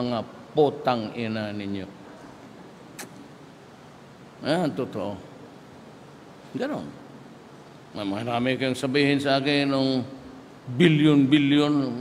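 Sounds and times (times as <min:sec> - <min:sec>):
low background hiss: 0:00.0 - 0:12.0
short sharp click: 0:03.0 - 0:03.2.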